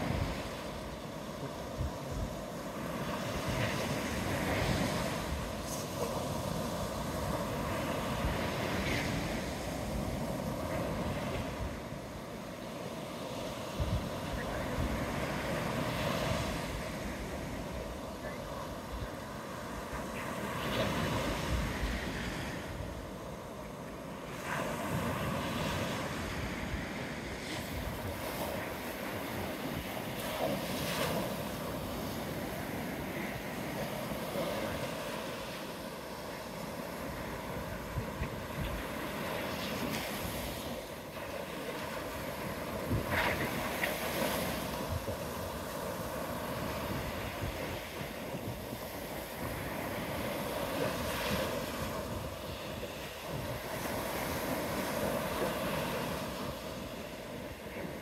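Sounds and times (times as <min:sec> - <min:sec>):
surf waves breaking on sand: 0:00.0 - 0:58.0
wind buffeting microphone: 0:24.3 - 0:35.2, 0:36.0 - 0:58.0.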